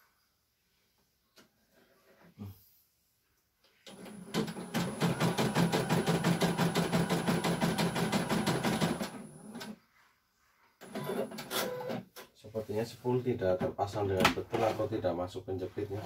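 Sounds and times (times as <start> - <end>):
embroidery machine stitching: 3.9 - 9.8.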